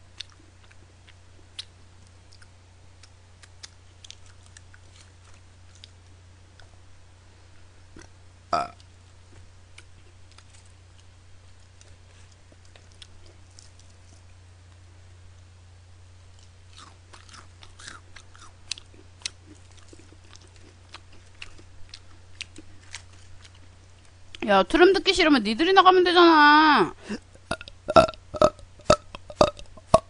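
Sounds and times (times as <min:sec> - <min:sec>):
steady low hum: 0:00.0 - 0:30.0
chewing crunchy fried chicken: 0:00.1 - 0:06.8, 0:07.9 - 0:14.8, 0:16.2 - 0:24.4
mouth clicks: 0:27.5 - 0:30.0.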